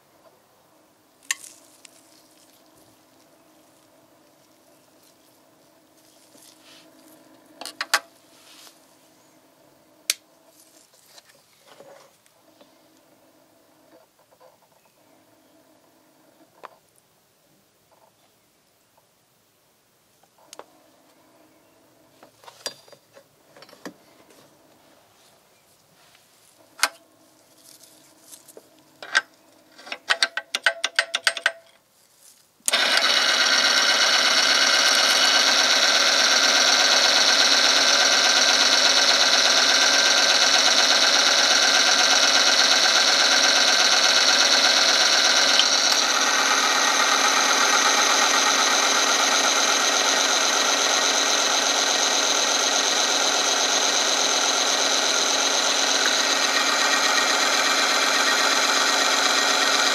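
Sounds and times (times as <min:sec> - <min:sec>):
clicks and taps: 0:30.0 - 0:31.8.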